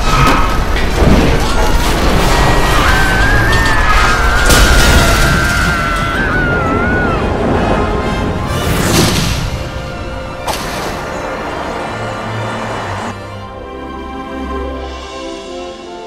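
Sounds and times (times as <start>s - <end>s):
dramatic orchestral music: 0.0s - 16.0s
boom and crash effects: 4.3s - 6.2s, 7.0s - 11.2s.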